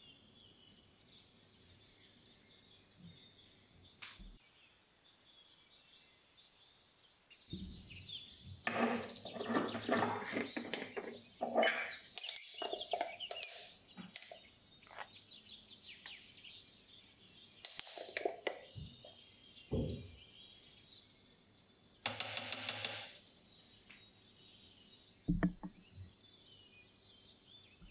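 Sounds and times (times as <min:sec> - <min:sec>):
metal spoon clinking on glass jar: 0:10.7 - 0:15.1, 0:17.6 - 0:18.8.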